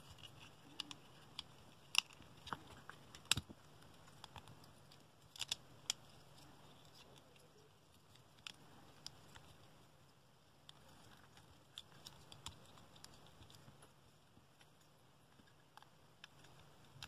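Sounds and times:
small plastic clicks: 0.6 - 7.3.

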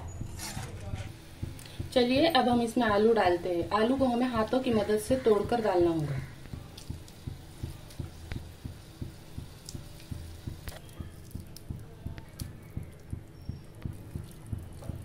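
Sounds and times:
steady low thumping: 0.0 - 15.0.

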